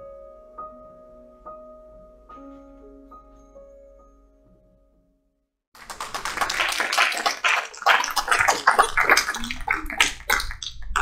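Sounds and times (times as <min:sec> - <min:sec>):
soft piano music: 0:00.0 - 0:05.4
congregation applauding: 0:05.8 - 0:10.3.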